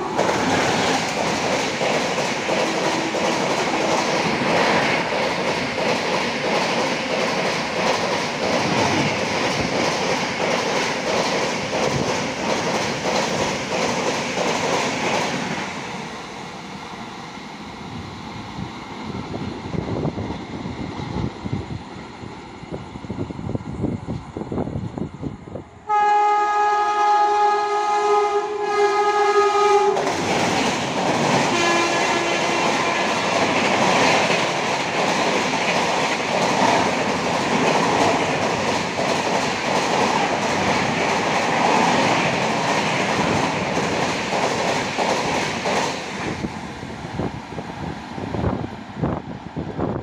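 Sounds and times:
train wheels clattering on rail: 0.0 - 16.5, 28.8 - 50.0
locomotive horn blast: 25.9 - 30.0, 31.5 - 33.1.

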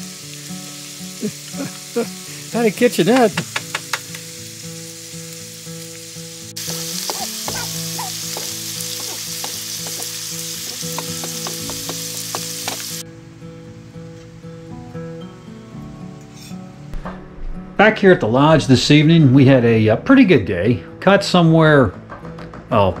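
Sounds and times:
food sizzling in a pan: 0.0 - 13.0, 16.1 - 16.8.

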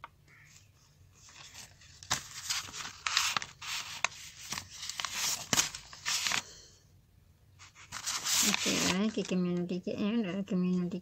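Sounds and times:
paper rustling and rubbing: 1.1 - 6.5, 7.6 - 9.4.

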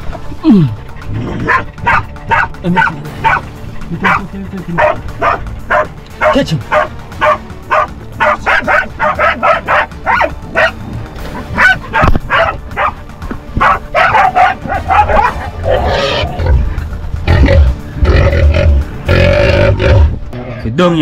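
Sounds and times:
dogs barking: 1.0 - 18.4
rough low noise: 6.9 - 20.6.

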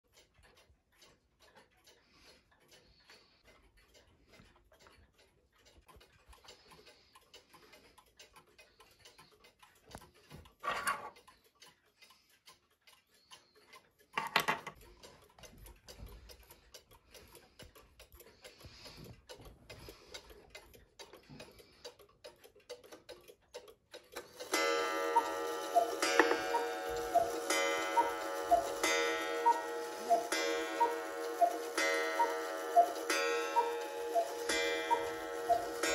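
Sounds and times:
mechanical clocks ticking: 0.0 - 35.9
held tones with beat: 24.4 - 35.9.

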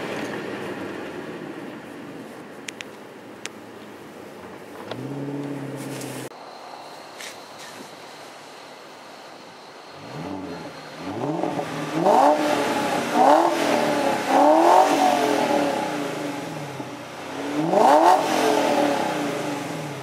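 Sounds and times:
car engine revving: 4.8 - 6.3, 10.0 - 20.0.

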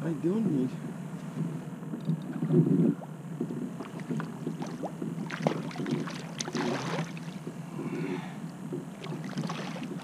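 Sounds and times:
fish thrashing and splashing: 3.8 - 7.5, 9.0 - 10.0.

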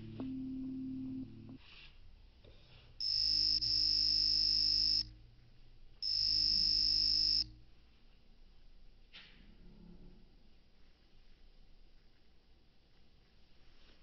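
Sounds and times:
shrill electronic buzzing tones: 3.0 - 5.1, 6.0 - 7.6.

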